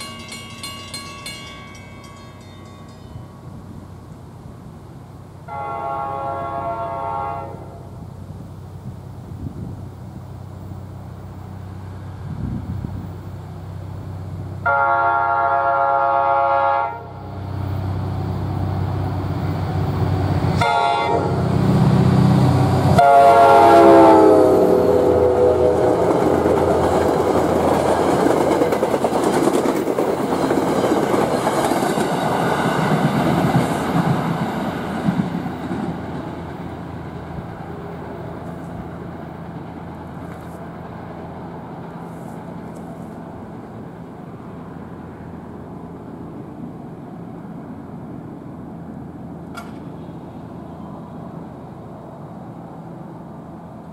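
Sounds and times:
locomotive air horn: 0:05.4 - 0:08.0, 0:14.6 - 0:17.2, 0:20.6 - 0:21.5, 0:23.0 - 0:26.1
train wheels clattering: 0:25.8 - 0:36.7.

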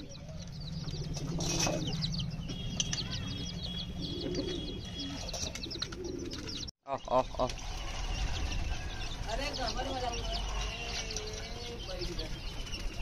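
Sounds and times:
pigeons cooing: 0:00.0 - 0:06.7
small birds chirping: 0:00.0 - 0:13.0.

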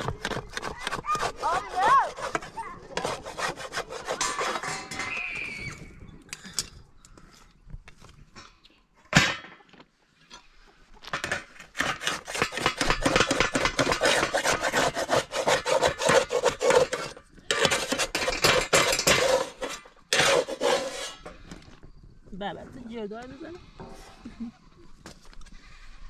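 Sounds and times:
fast rhythmic scraping: 0:00.0 - 0:05.0.

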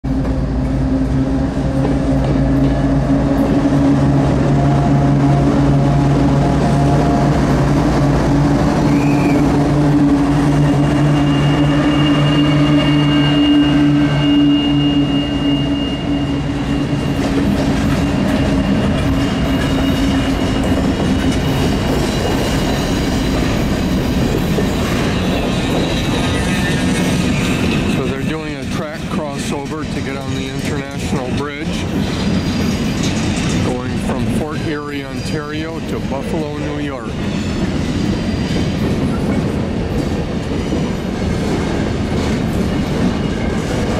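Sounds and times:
locomotive engine drone: 0:00.0 - 0:43.9
wheels rumbling on rail: 0:00.0 - 0:43.9
thin high wheel squeal: 0:10.5 - 0:21.6, 0:24.9 - 0:28.5.

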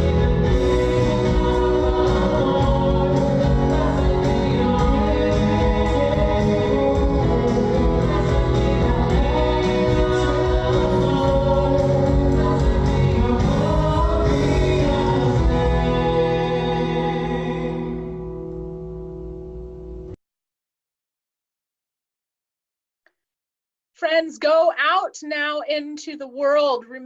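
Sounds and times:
drums on a steady beat: 0:00.0 - 0:15.8
band singing a worship song: 0:00.0 - 0:18.3
acoustic guitar: 0:00.0 - 0:20.2
keyboard: 0:00.0 - 0:20.2.

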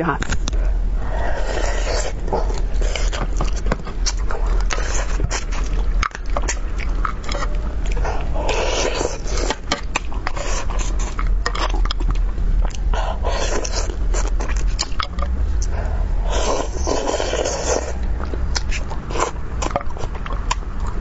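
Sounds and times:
wet chewing and smacking: 0:01.3 - 0:21.0.

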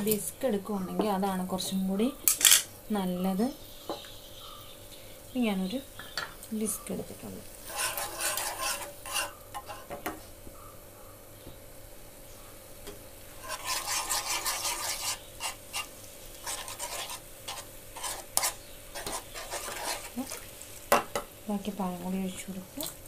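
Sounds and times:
whisk scraping in a steel pan: 0:07.6 - 0:10.0, 0:13.4 - 0:20.5
whisk clinking against pan: 0:07.7 - 0:09.9.

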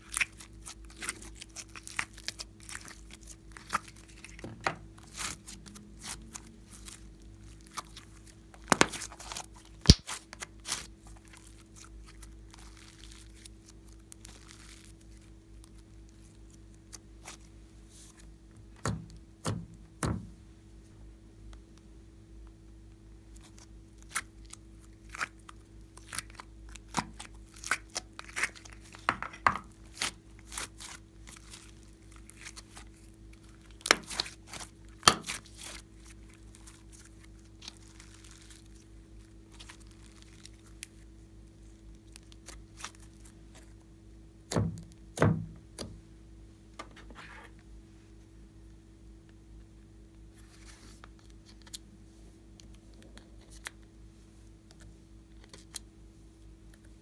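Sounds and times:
slime peeling and tearing: 0:00.0 - 0:17.5, 0:23.4 - 0:29.1, 0:29.8 - 0:41.0, 0:42.0 - 0:43.7
steady low hum: 0:00.0 - 0:57.0.

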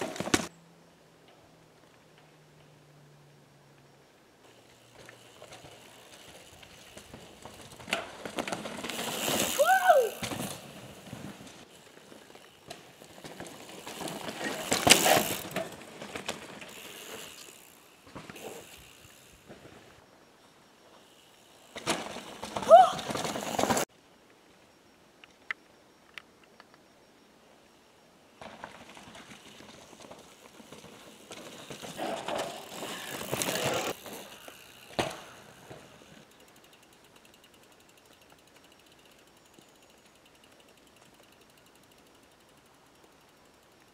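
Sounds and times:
bike tyres rushing over dirt: 0:00.0 - 0:00.5, 0:04.5 - 0:20.1, 0:20.8 - 0:23.9, 0:28.4 - 0:42.6
bike clicks and knocks: 0:04.7 - 0:11.6, 0:12.3 - 0:19.8, 0:28.4 - 0:41.9
freewheel ticking: 0:32.7 - 0:43.8.

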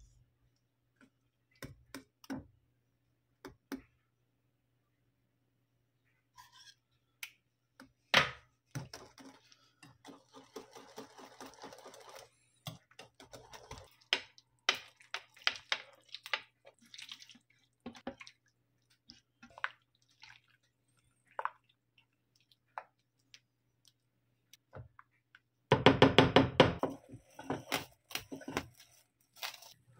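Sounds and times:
rapid clatter and liquid sounds: 0:08.7 - 0:23.4
whisk beating cream in bowl: 0:09.0 - 0:14.8.

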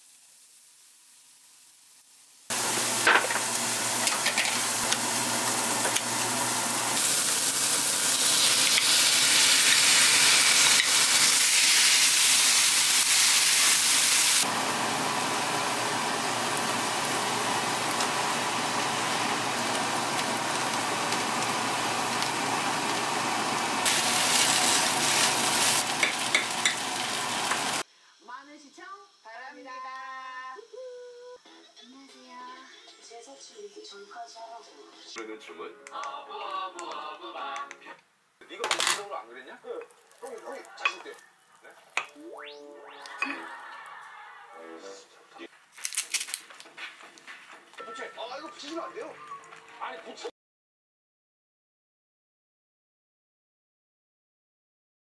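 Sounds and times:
food sizzling in a frying pan: 0:00.0 - 0:27.8, 0:38.8 - 0:44.1.

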